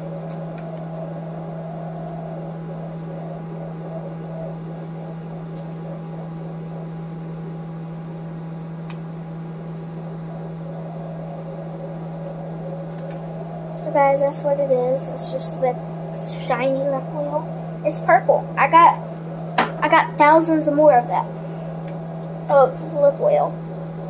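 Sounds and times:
room noise hiss: 0.0 - 24.0
steady hum: 0.0 - 24.0.

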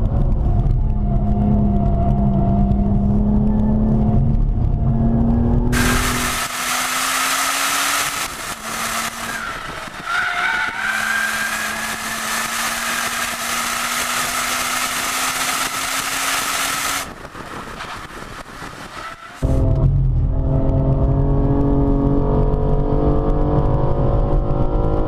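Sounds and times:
wind rush: 0.0 - 24.9
tyre squeal: 8.8 - 15.4, 18.8 - 19.4
low steady drone: 19.4 - 22.1.

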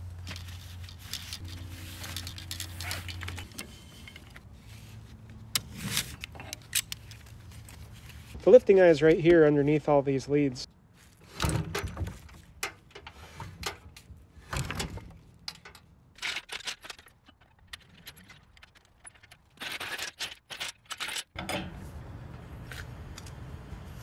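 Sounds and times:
metallic clinks and rattles: 0.2 - 4.4.

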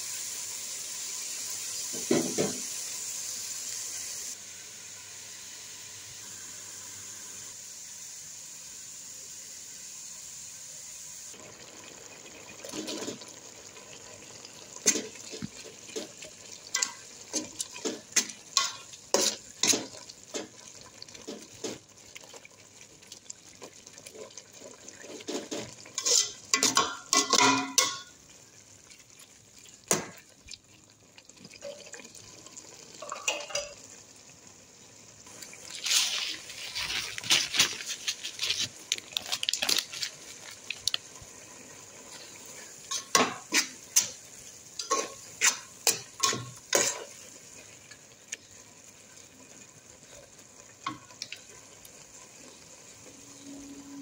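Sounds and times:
food sizzling: 0.0 - 54.0
spatula scraping metal pot: 25.1 - 28.0.

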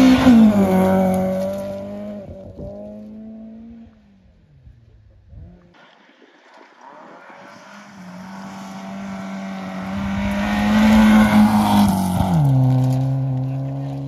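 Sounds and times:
rally car engine at high revs: 0.0 - 3.9, 7.8 - 14.0
gravel noise: 0.0 - 14.0.

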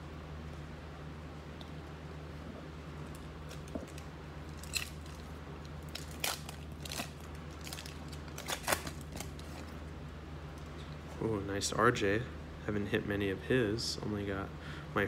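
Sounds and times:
steady low hum: 0.0 - 15.0
foil wrapper crackling: 5.9 - 9.7.

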